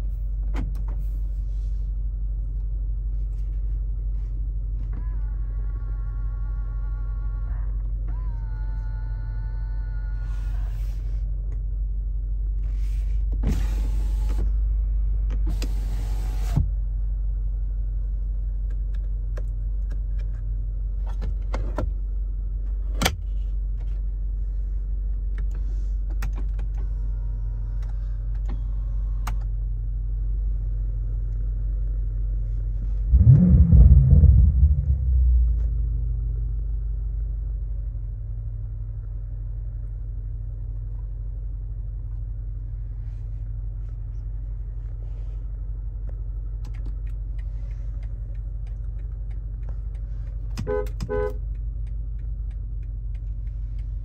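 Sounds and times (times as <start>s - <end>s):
car engine idling: 0.0s - 54.0s
engine revving: 33.1s - 36.4s.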